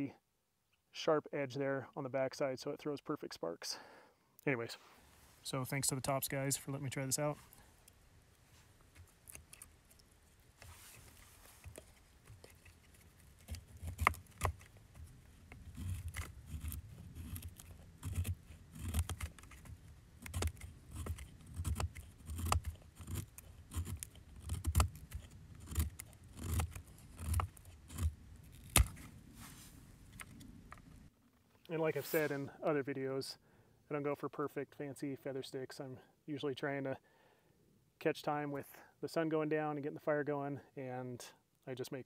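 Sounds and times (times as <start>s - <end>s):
knife scraping wood: 8.7s - 30.4s.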